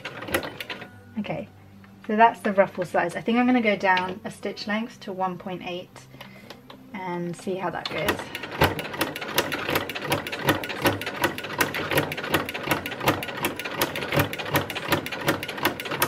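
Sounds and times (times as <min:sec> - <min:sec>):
sewing machine stitching: 0:00.0 - 0:00.9, 0:07.8 - 0:16.0.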